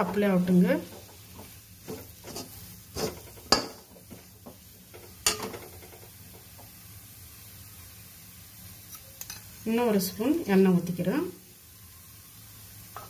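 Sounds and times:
metal spatula scraping a pan: 0.0s - 6.0s
faint steady hiss: 0.0s - 13.0s.

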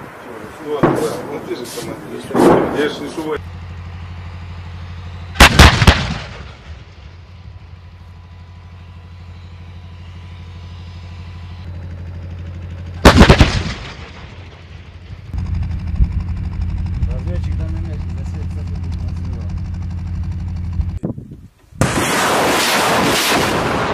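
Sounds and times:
low engine hum: 0.0s - 21.9s
bursts of heavy gunfire: 5.4s - 6.7s, 13.0s - 14.5s, 21.8s - 23.9s.

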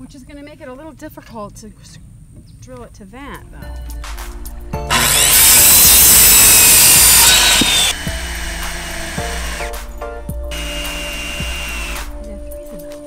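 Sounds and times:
background music: 3.1s - 13.0s
cordless drill driving into wood: 4.9s - 9.8s, 10.5s - 12.1s
circular saw cutting wood: 4.9s - 12.2s.

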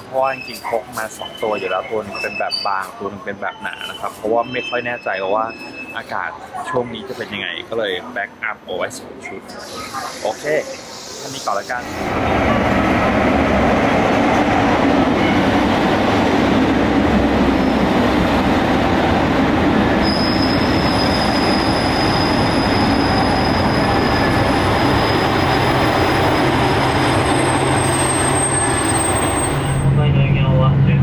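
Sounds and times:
train cars rumbling past: 9.6s - 31.0s
thin high squeal: 20.0s - 26.6s.

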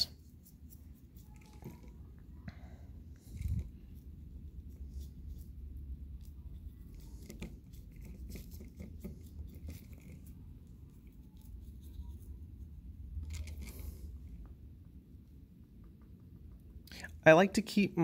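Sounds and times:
paintbrush dabbing and scratching: 0.0s - 2.4s, 3.2s - 14.4s.

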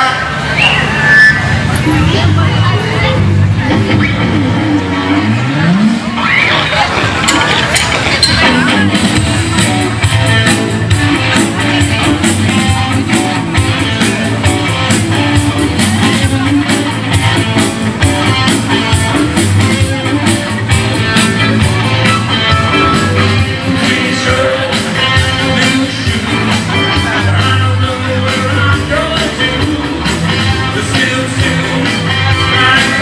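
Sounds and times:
live rock band playing: 1.5s - 33.0s
drum beat: 6.9s - 27.8s.

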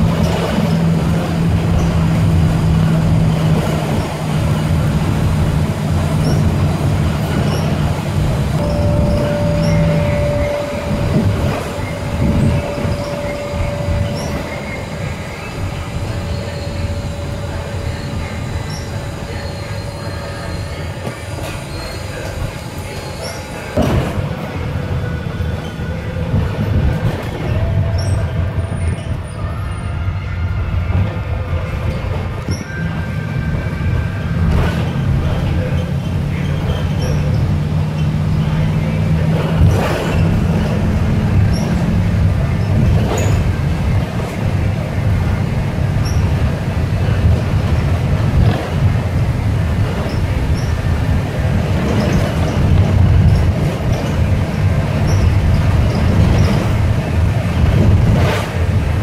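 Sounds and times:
bus engine and road rumble: 0.0s - 59.0s
thin steady whine: 8.6s - 20.6s.

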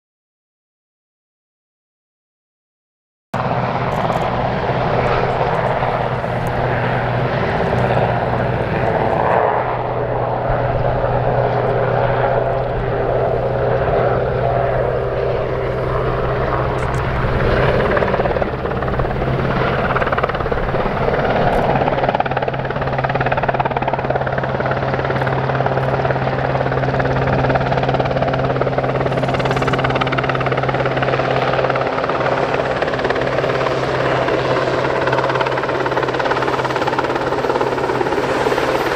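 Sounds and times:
constant low hum: 3.4s - 34.5s
helicopter engines and rotor: 3.4s - 38.9s.

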